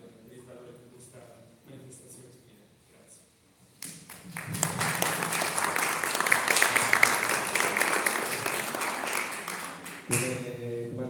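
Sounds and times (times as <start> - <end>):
audience applauding: 4.1 - 10.4.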